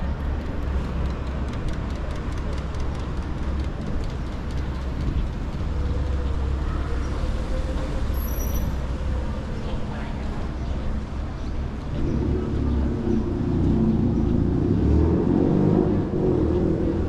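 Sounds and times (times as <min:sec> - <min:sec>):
city street noise: 0:00.0 - 0:17.0
vehicle passing with deep rumble: 0:10.4 - 0:17.0.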